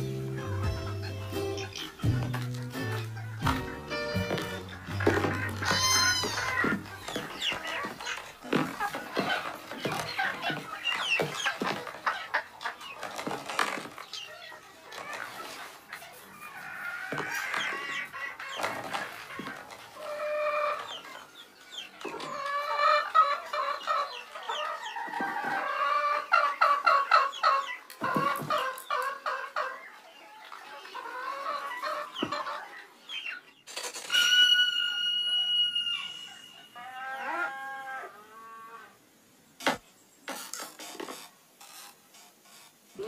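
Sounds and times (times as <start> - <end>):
hens clucking: 0.0 - 39.0
hen long held call: 34.1 - 38.9.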